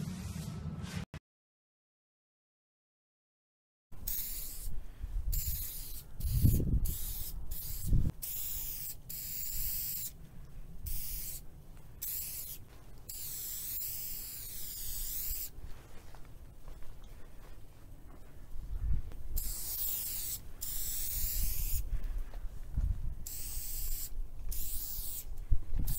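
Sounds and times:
spray paint can hissing: 0:04.0 - 0:10.2, 0:10.8 - 0:11.4, 0:12.0 - 0:15.6, 0:19.4 - 0:21.9, 0:23.2 - 0:25.9
low bumps: 0:22.0 - 0:23.2.

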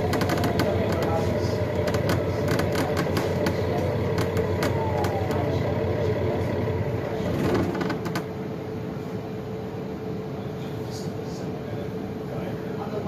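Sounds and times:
clicks and rattles: 0:00.0 - 0:01.1, 0:01.7 - 0:05.4
bus drive hum: 0:00.0 - 0:13.0.

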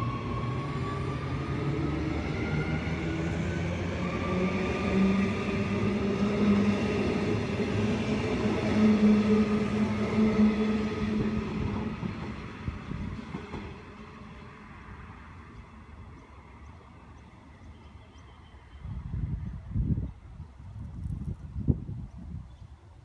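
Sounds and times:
train wheels rumbling on rails: 0:00.0 - 0:14.6.

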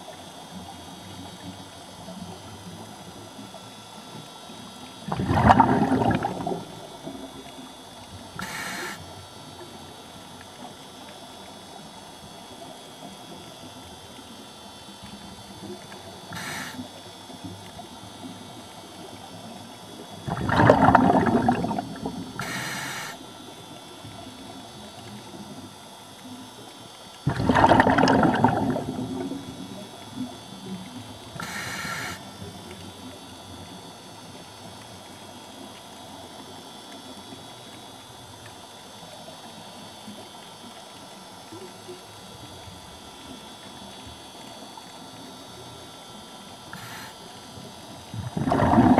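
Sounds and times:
bubbling exhalation underwater: 0:05.0 - 0:07.3, 0:20.2 - 0:23.2, 0:27.3 - 0:30.0, 0:48.1 - 0:48.9
steady hiss: 0:08.3 - 0:09.1, 0:16.3 - 0:17.0, 0:22.1 - 0:23.3, 0:31.2 - 0:32.3, 0:46.7 - 0:47.4
regulator inhalation hiss: 0:08.4 - 0:09.1, 0:16.3 - 0:16.9, 0:22.4 - 0:23.3, 0:31.4 - 0:32.3, 0:46.7 - 0:47.3.

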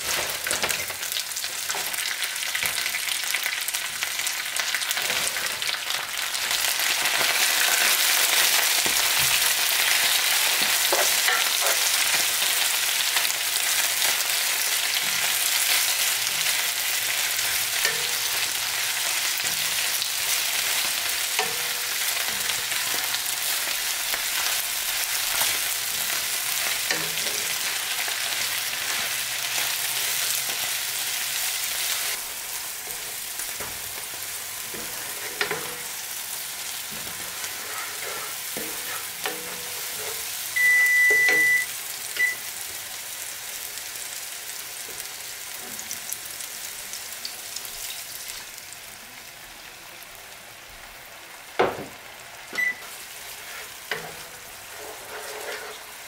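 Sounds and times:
vegetables sizzling in frying pan: 0:00.0 - 0:56.0
high beep: 0:40.6 - 0:42.4, 0:52.6 - 0:52.9
wooden spoon scraping and tapping: 0:53.4 - 0:55.8.

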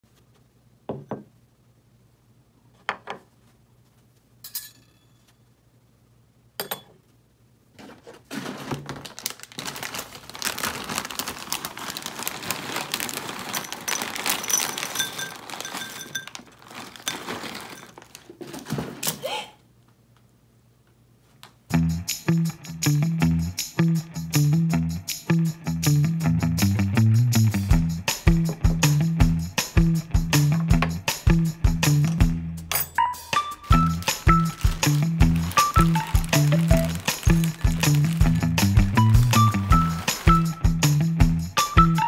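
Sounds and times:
metal spoon clinking: 0:04.4 - 0:05.3, 0:06.6 - 0:07.0, 0:13.9 - 0:16.5, 0:32.7 - 0:33.1
cereal pouring into bowl: 0:09.1 - 0:18.2, 0:33.7 - 0:40.6.

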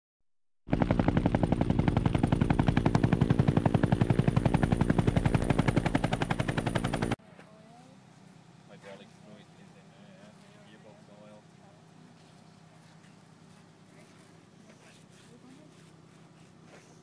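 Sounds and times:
helicopter rotor chopping: 0:00.7 - 0:07.2.

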